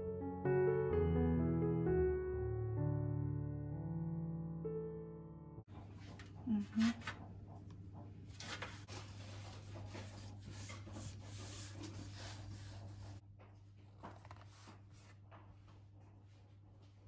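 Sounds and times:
hands rubbing and pressing dough: 5.8 - 16.1.

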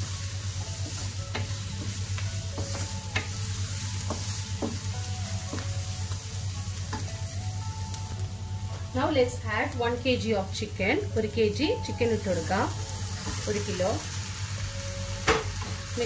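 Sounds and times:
masala sizzling in oil: 0.0 - 10.2, 11.2 - 16.0.

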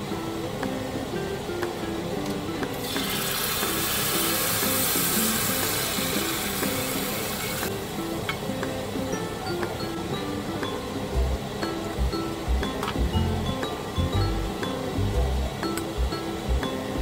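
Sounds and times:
background music: 0.0 - 17.0
tomato puree sizzling in hot oil: 2.7 - 9.3.

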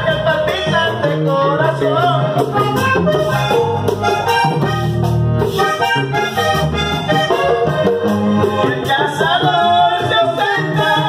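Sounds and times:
button accordion melody: 0.0 - 11.0
steady beat: 0.1 - 10.4.

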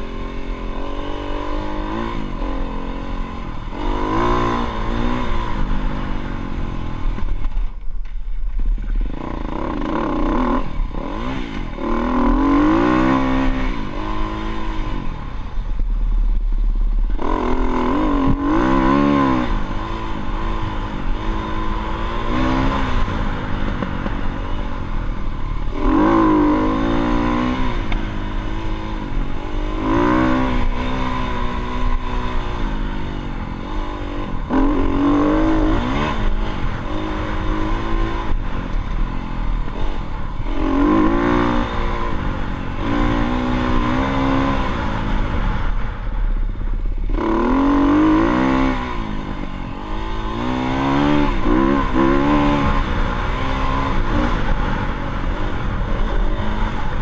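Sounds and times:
dirt bike engine revving: 0.0 - 7.6, 8.8 - 57.0.

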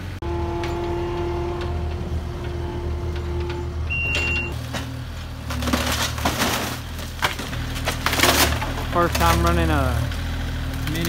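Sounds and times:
excavator engine running: 0.0 - 11.0
short high beep: 3.9 - 4.6
wood cracking and splintering: 4.5 - 11.0.

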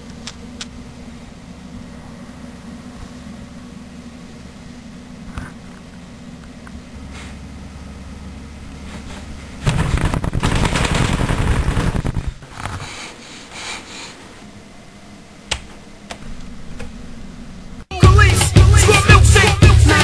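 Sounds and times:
loud rough crackling: 9.6 - 13.0.

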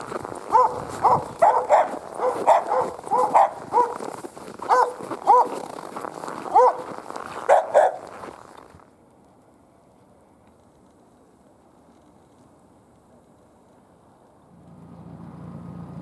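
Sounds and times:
dog barking: 0.5 - 5.6, 6.4 - 8.1.

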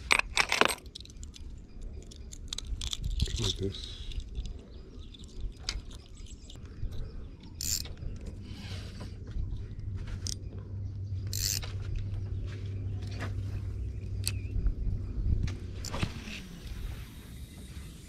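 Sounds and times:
low steady hum: 0.0 - 18.0
fishing reel gears cranking: 7.6 - 7.9, 11.3 - 11.6.

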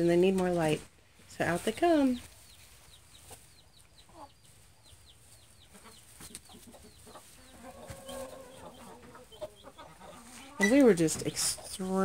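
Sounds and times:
clicks and rustles in straw: 1.8 - 9.3
hens clucking softly: 2.5 - 11.8
drawn-out hen call: 5.4 - 12.0.

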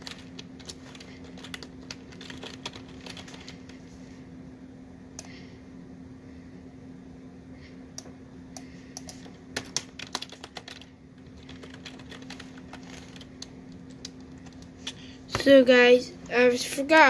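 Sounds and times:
computer keyboard typing: 0.0 - 3.7, 9.0 - 14.7
steady low hum: 0.0 - 17.0.

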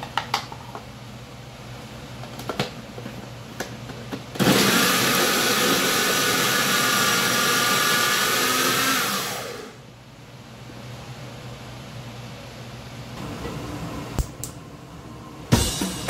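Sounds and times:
food processor motor whining: 4.4 - 9.8.

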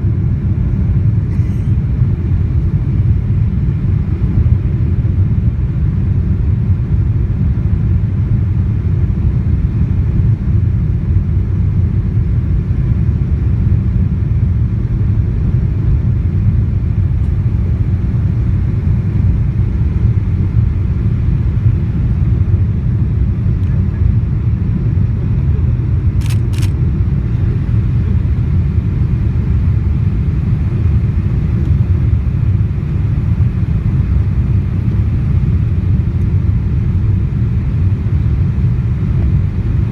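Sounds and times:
jet engines rumbling: 0.0 - 39.9
quick clicks: 26.2 - 26.8.

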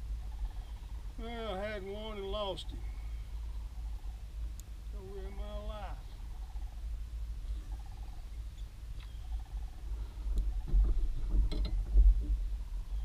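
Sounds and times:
steady low rumble: 0.0 - 13.0
knocks and bumps in a boat: 10.6 - 12.5.

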